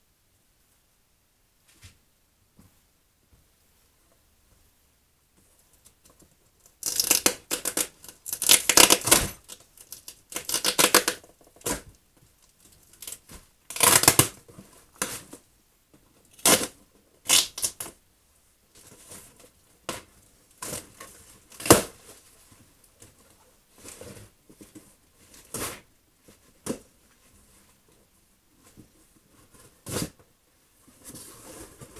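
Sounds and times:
rustling of contents: 18.7 - 31.9.

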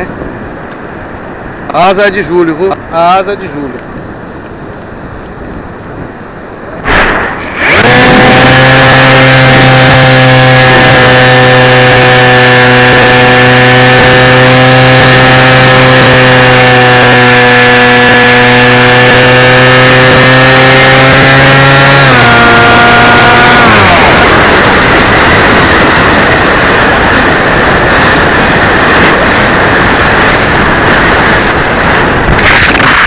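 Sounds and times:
propeller motor droning: 0.0 - 33.0
brief loud rush of noise: 6.8 - 8.5.

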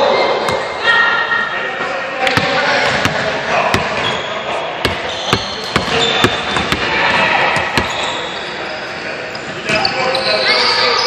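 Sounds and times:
basketball bouncing on wooden floor: 4.8 - 6.9.

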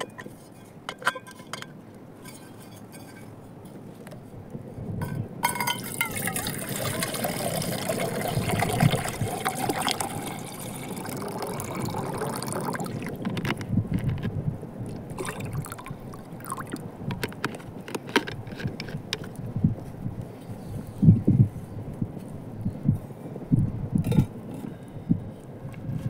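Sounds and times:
water pouring into metal pot: 5.5 - 13.2, 15.2 - 16.8.

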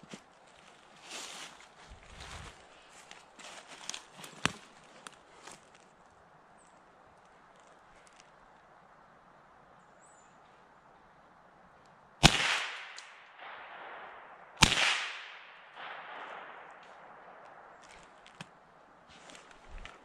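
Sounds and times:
rifle shots echoing: 12.2 - 18.2.

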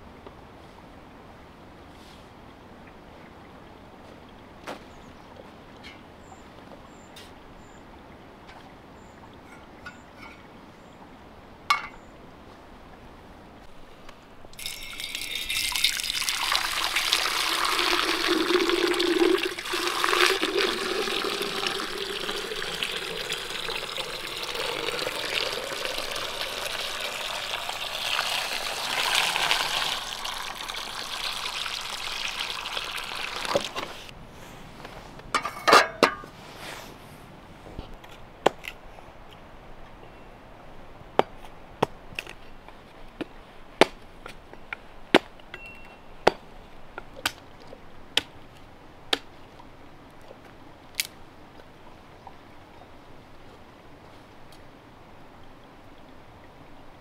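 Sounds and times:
water pouring into metal urn: 14.6 - 33.8.

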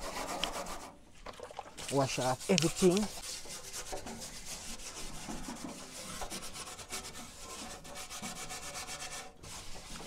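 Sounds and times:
grill being scrubbed: 1.9 - 10.0.

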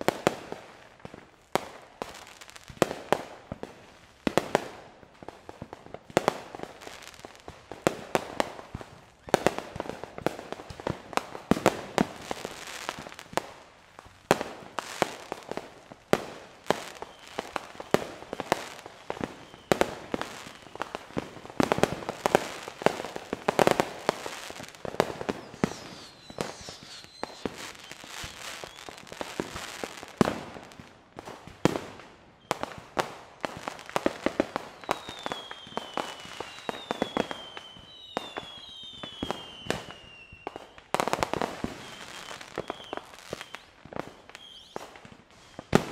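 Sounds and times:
firework bangs: 14.3 - 45.9
falling firework whistles: 16.7 - 21.0, 21.6 - 30.3, 34.5 - 45.9.

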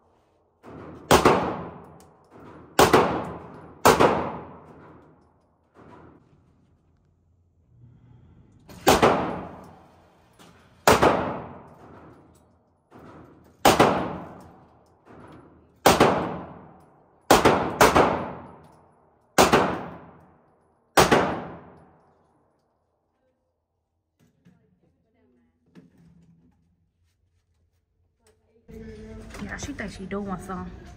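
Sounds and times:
handgun shots echoing indoors: 0.6 - 6.0, 8.7 - 9.9, 10.8 - 23.0
faint gunshots: 8.8 - 9.6.

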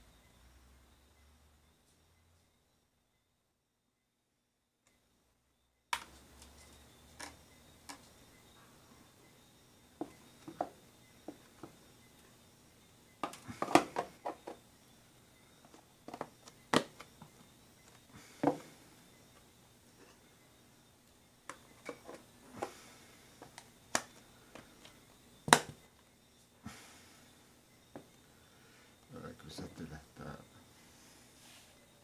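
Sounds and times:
plastic lids snapping on: 13.2 - 14.6, 16.1 - 17.1, 23.4 - 24.7, 25.5 - 25.8.

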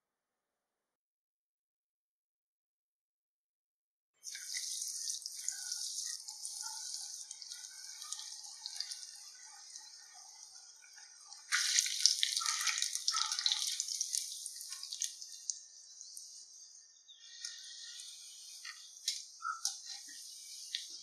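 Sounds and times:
bread rolls sizzling in hot oil: 4.2 - 16.6, 17.2 - 21.0.

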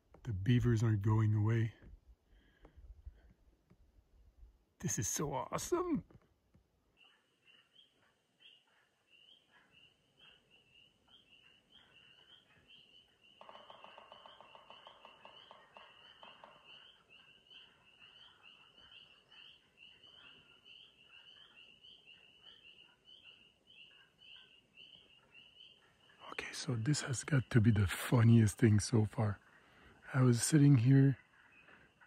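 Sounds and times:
frogs peeping: 7.0 - 32.0.

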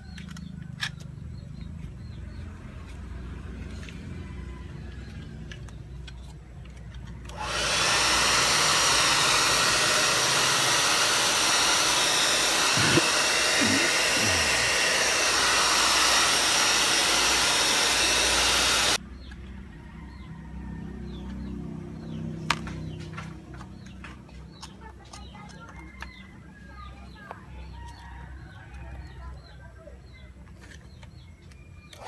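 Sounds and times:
hair dryer blowing: 7.3 - 19.0.

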